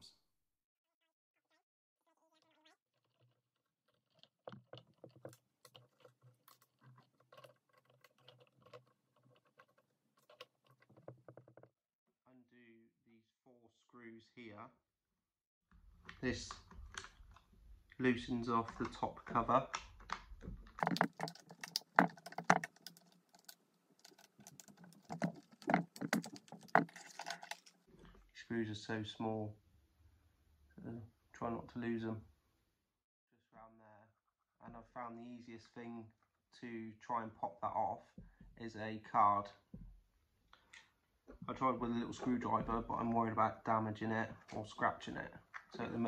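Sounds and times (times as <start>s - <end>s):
plastic parts clicking: 18.6s - 27.8s.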